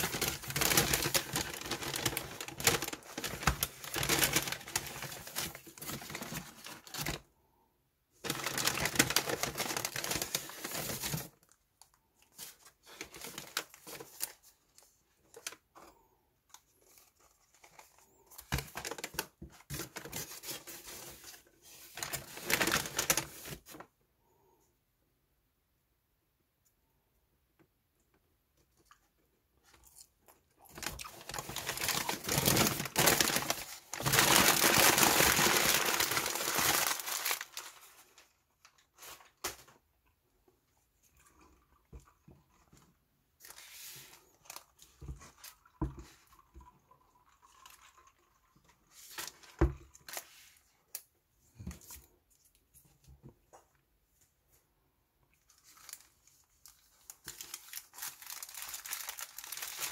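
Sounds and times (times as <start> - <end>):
paper wrapper crinkling: 0.0 - 7.3, 8.2 - 11.6, 12.2 - 23.9, 30.6 - 39.8, 43.4 - 46.7, 48.9 - 51.1, 55.4 - 59.9.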